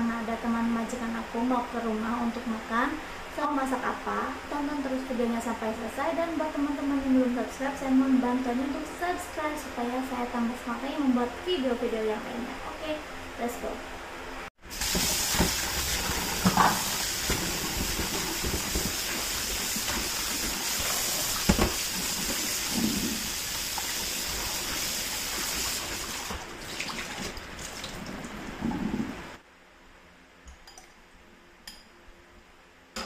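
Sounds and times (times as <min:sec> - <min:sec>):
tap water splashing in sink: 0:14.8 - 0:28.2.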